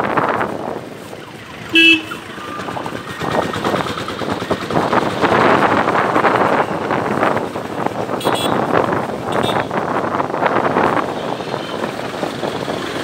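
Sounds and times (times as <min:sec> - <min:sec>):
wind rushing over microphone: 0:00.0 - 0:13.0
motorcycle engine running: 0:00.4 - 0:13.0
short horn toot: 0:01.8 - 0:02.2.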